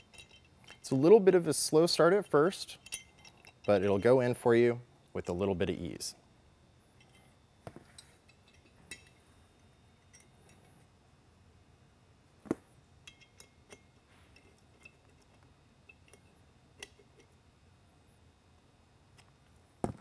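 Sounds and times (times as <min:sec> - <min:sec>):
small hardware clicks and knocks: 0:07.0 - 0:09.2, 0:13.0 - 0:17.4.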